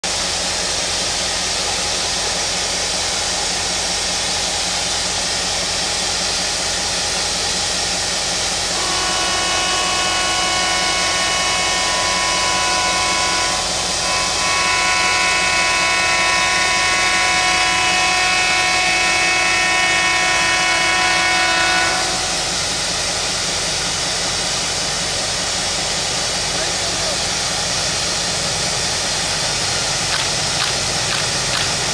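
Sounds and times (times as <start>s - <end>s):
steam locomotive hissing: 0.0s - 31.9s
train horn chord: 8.6s - 22.8s.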